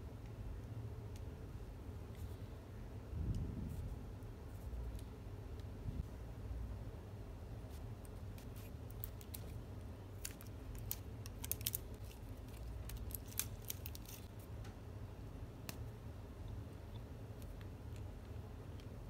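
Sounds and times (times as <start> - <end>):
plastic clicks and crinkles: 10.2 - 14.3.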